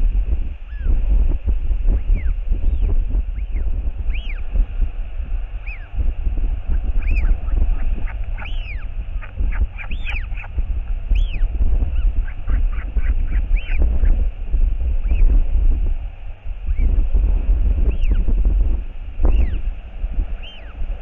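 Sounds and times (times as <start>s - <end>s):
wind rumble on microphone: 0.0s - 21.0s
chick squeaky begging calls: 3.4s - 4.4s, 5.6s - 5.9s, 6.7s - 13.8s.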